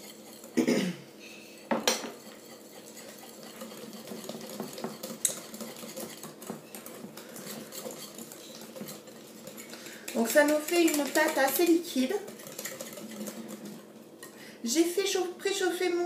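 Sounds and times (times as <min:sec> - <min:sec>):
wire whisk clinking against glass bowl: 0:07.4 - 0:13.4.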